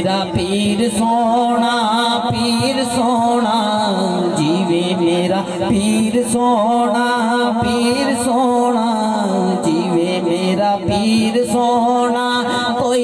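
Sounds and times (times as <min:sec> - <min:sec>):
men's voices droning: 0:00.0 - 0:13.0.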